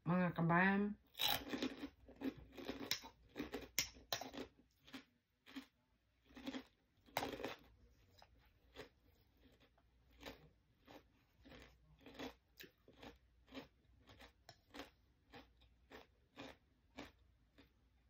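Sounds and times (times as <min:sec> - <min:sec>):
chewing and crunching food: 0:01.1 - 0:18.0.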